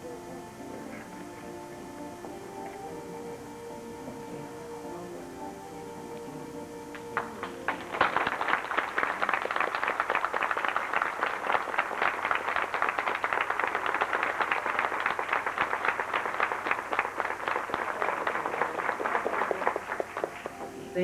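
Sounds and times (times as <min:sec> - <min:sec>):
audience applause: 0:06.9 - 0:20.9.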